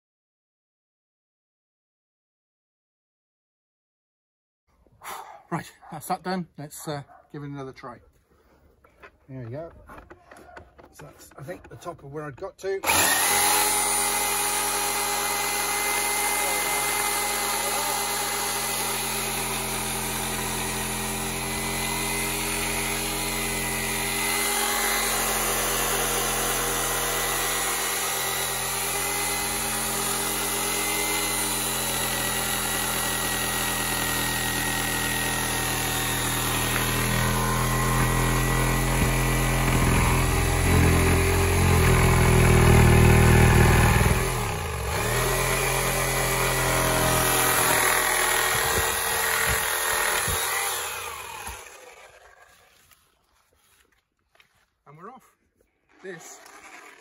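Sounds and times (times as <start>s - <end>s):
reciprocating saw cutting timber: 9.4s - 53.0s, 55.9s - 57.0s.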